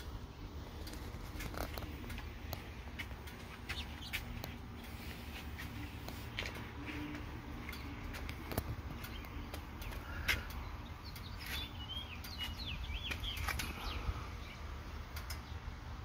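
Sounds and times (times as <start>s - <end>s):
low steady rumble: 0.0s - 16.0s
faint bird chirps: 8.9s - 15.7s
sharp clicks: 15.1s - 15.6s.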